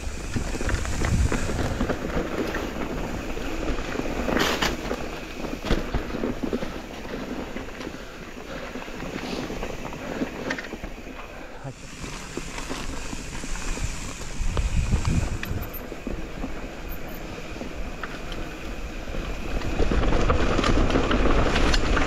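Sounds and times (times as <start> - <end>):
wind on microphone: 0.0 - 4.0, 12.4 - 16.6
bike rattling over bumps: 0.0 - 22.0
bike tyres on dirt trail: 0.0 - 22.0.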